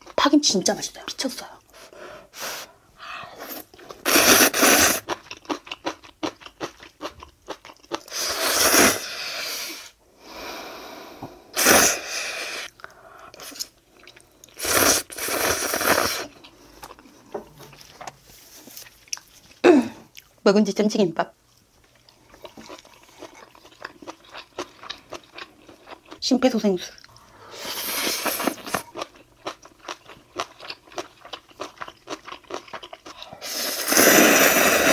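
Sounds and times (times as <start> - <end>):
slurping noodles: 3.4 - 5.1, 8.1 - 9.8, 14.6 - 16.4, 33.4 - 34.9
wet chewing and crunching: 5.0 - 8.1, 15.6 - 20.4, 21.4 - 26.2, 28.0 - 33.7.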